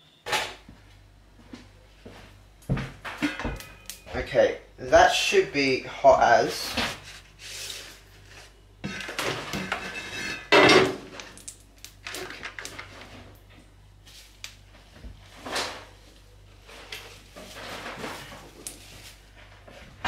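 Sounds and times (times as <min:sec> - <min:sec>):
dishes and utensils knocking: 0:03.0 - 0:03.8, 0:08.8 - 0:11.0.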